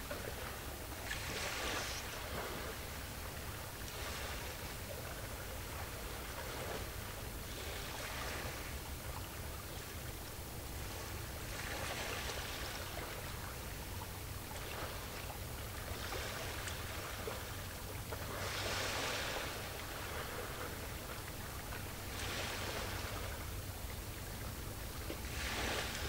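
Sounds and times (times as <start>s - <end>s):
small waves splashing: 0.0s - 26.0s.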